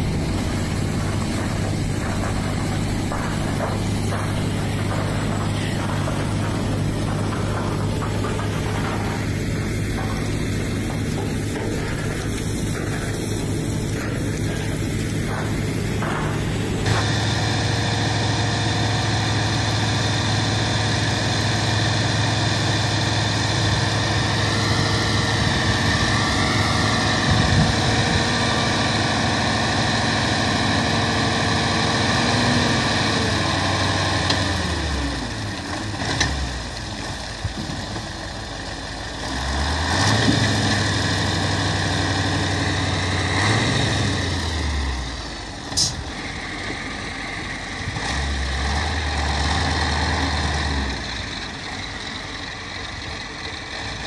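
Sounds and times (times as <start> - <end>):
load pouring out: 0.0 - 17.8
diesel engine running: 0.0 - 54.0.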